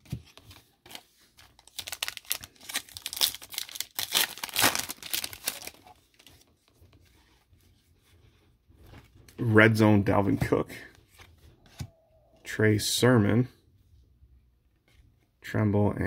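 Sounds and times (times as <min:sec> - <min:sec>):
foil wrapper crinkling and tearing: 0:01.6 - 0:06.2.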